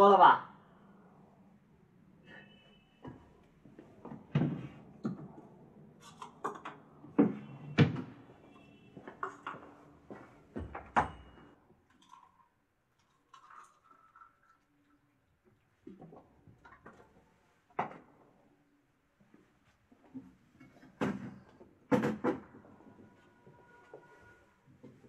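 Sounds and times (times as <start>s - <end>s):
objects knocking and clattering: 20.5s - 22.6s.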